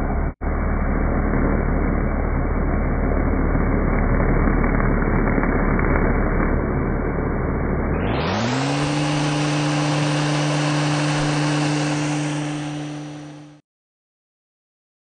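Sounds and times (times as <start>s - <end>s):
router spindle whine: 0.5s - 13.6s
router cutting wood: 7.9s - 13.6s.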